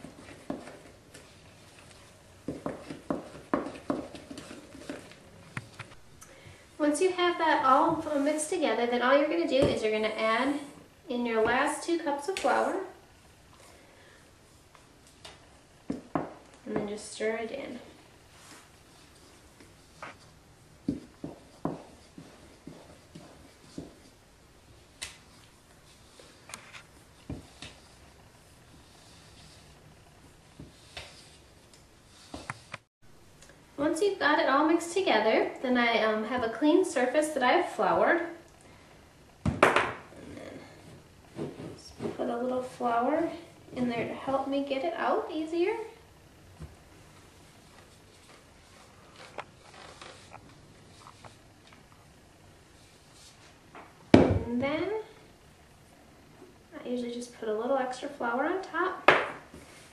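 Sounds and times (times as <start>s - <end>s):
wooden spoon stirring dough: 0.0s - 5.2s, 15.5s - 24.2s.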